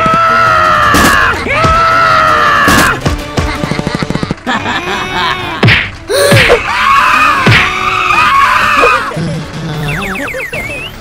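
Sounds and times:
cartoon music: 8.4 - 11.0.

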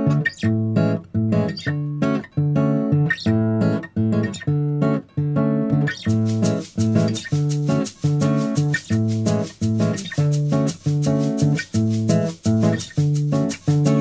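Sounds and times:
strummed acoustic guitar: 0.0 - 14.0.

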